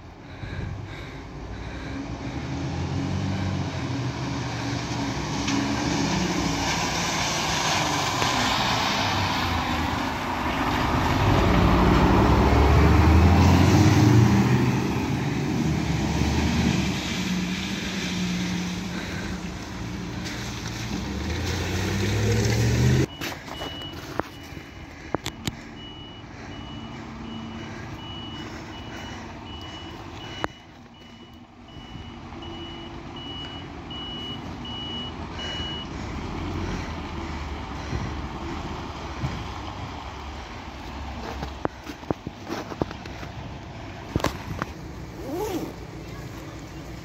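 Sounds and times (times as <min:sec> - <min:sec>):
fire engine passing by: 0:00.1 - 0:47.0
reversing alarm beeping: 0:23.0 - 0:35.9.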